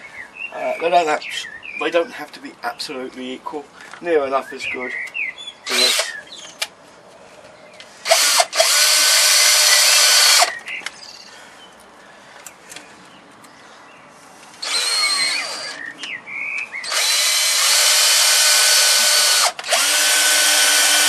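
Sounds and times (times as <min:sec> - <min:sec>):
cordless drill driving screws: 0:05.7 - 0:06.2, 0:08.0 - 0:10.5, 0:14.6 - 0:15.8, 0:16.8 - 0:21.0.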